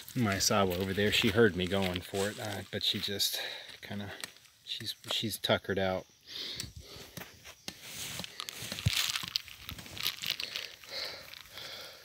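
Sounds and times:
footsteps through dry leaves: 0:00.0 - 0:03.2, 0:07.8 - 0:11.6.

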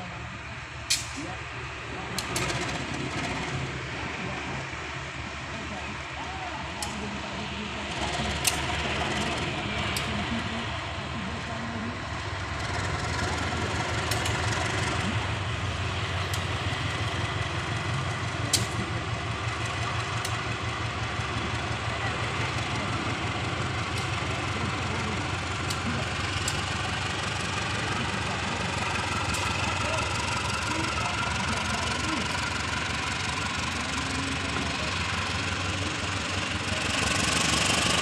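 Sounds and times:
locomotive diesel engine idling: 0:00.0 - 0:38.0
sharp clicks: 0:14.0 - 0:14.6.

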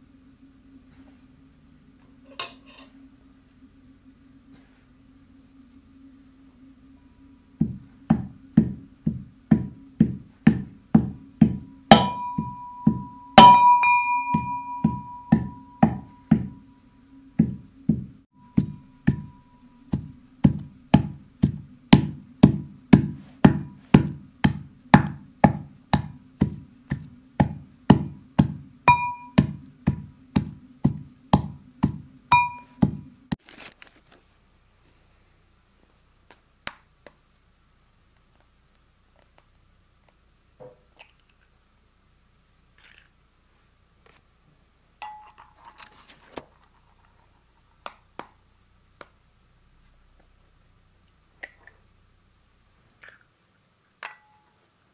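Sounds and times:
pestle pounding in mortar: 0:07.6 - 0:16.6, 0:17.4 - 0:33.2
metal mortar ringing: 0:11.5 - 0:16.6, 0:28.9 - 0:29.6, 0:32.3 - 0:33.0, 0:45.0 - 0:45.5.

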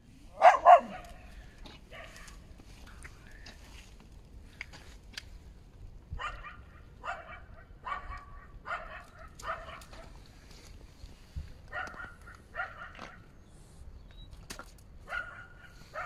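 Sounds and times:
dog barking: 0:00.3 - 0:01.3, 0:06.2 - 0:10.1, 0:11.7 - 0:13.2, 0:15.0 - 0:16.0.

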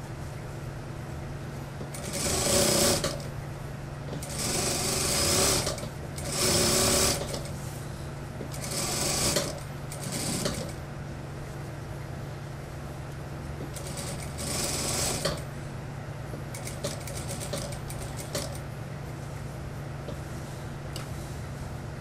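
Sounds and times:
steady low hum: 0:00.0 - 0:22.0
sewing machine stitching: 0:01.9 - 0:03.2, 0:04.2 - 0:07.5, 0:08.5 - 0:10.8, 0:13.7 - 0:15.4.

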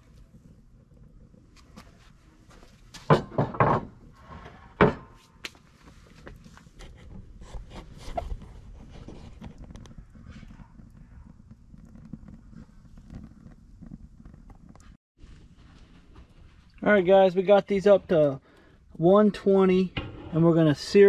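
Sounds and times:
knocks and clunks on a grill: 0:02.9 - 0:05.2, 0:19.9 - 0:20.6.

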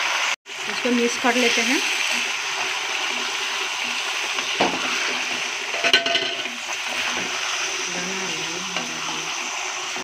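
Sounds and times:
chicken sizzling in hot oil: 0:00.0 - 0:10.0
wooden spatula stirring: 0:01.4 - 0:08.1.

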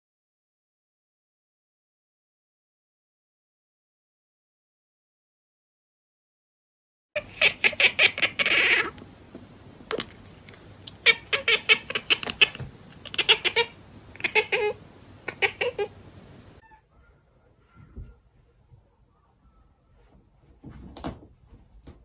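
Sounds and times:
cat chattering: 0:07.2 - 0:09.0, 0:10.9 - 0:16.0.

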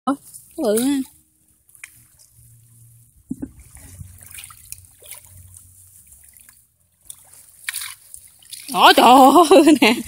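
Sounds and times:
water trickling and dripping: 0:00.1 - 0:10.0.

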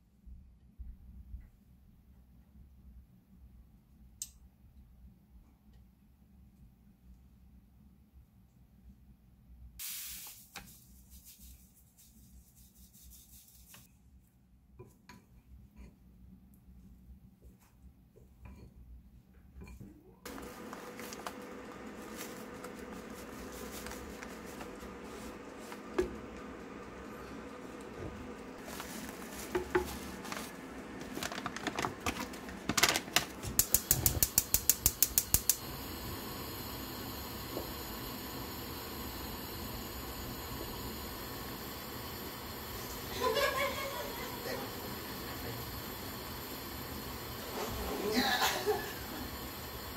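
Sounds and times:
sugar pouring hiss: 0:09.8 - 0:13.9, 0:20.3 - 0:49.9
seasoning packet shaken: 0:10.3 - 0:13.8, 0:20.3 - 0:25.8, 0:28.6 - 0:35.4
wooden spoon stirring pan: 0:20.3 - 0:32.6
stove igniter clicking: 0:33.6 - 0:35.8.

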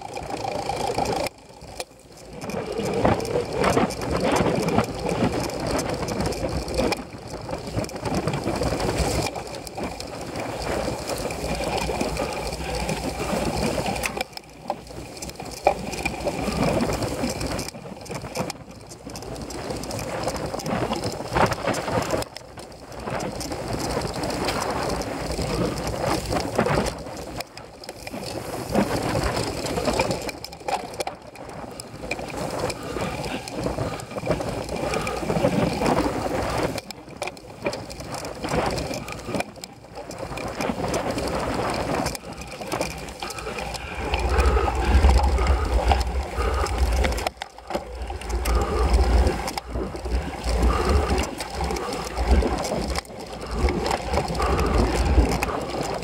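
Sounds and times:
bike tyres and drivetrain rattling: 0:00.0 - 0:56.0
heavy low rumble: 0:43.2 - 0:51.1.

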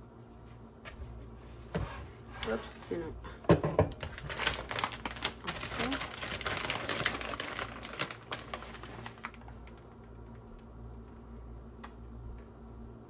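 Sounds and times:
plastic bag crackling: 0:03.9 - 0:09.9.

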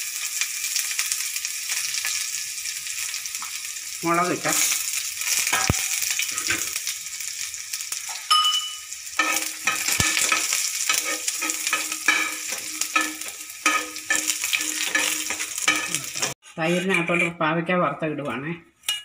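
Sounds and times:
onions sizzling in hot oil: 0:00.0 - 0:16.4
metal spoon scraping a pan: 0:04.5 - 0:06.8, 0:08.1 - 0:17.5, 0:18.8 - 0:19.0.

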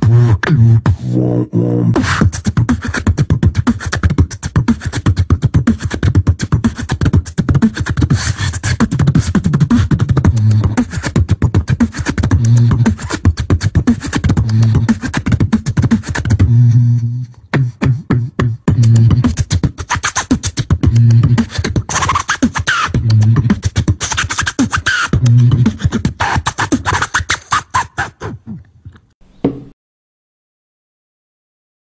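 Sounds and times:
hummed bass notes: 0:00.0 - 0:02.6, 0:10.0 - 0:10.9, 0:11.5 - 0:13.0, 0:14.3 - 0:15.5, 0:16.2 - 0:19.7, 0:20.5 - 0:21.9, 0:22.9 - 0:23.8, 0:25.2 - 0:25.8
beatboxing vocal percussion: 0:00.0 - 0:29.1.

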